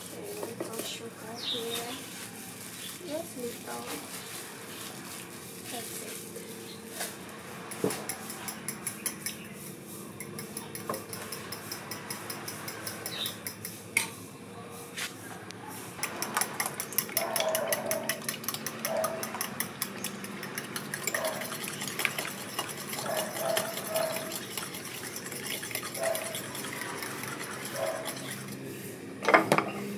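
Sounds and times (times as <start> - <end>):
utensil beating eggs in glass bowl: 16.0 - 28.7.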